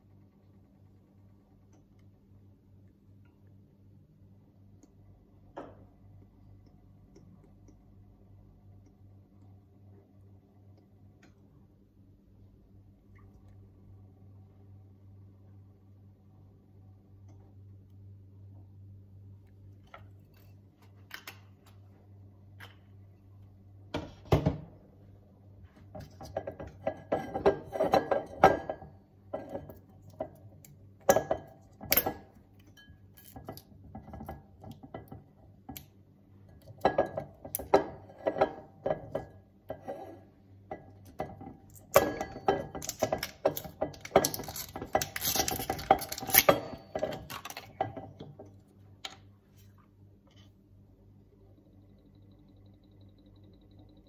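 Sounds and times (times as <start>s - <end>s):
glass bowl and utensils clinking: 31.1s - 34.2s, 41.1s - 48.2s.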